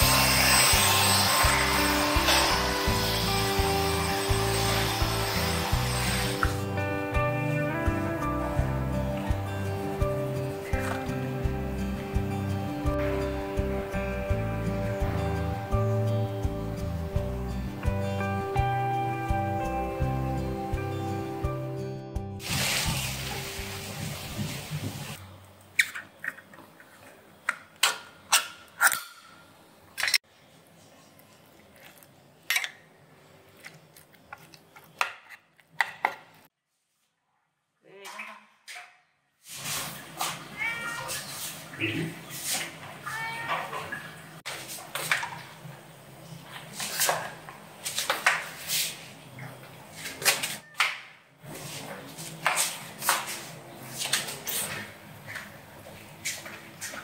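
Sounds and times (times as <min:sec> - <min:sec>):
cats meowing: 0:40.4 - 0:42.0, 0:43.0 - 0:44.2, 0:50.4 - 0:50.9.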